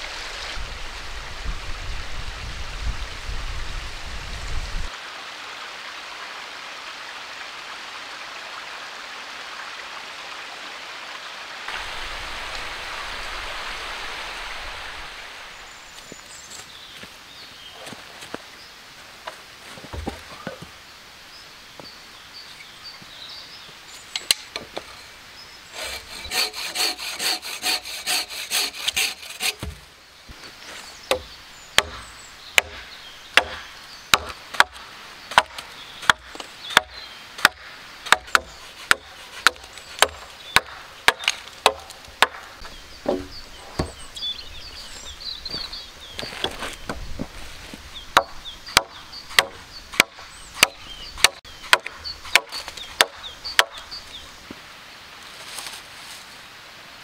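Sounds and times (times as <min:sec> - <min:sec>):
rasping strokes on wood: 0:25.7 - 0:29.8
axe chopping wood: 0:28.9 - 0:29.8, 0:31.1 - 0:32.0, 0:32.6 - 0:44.0, 0:48.2 - 0:53.8.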